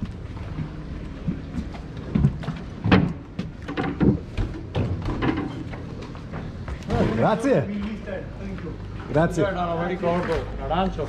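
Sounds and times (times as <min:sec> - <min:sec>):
wooden boat knocks and thumps: 0:00.0 - 0:07.2.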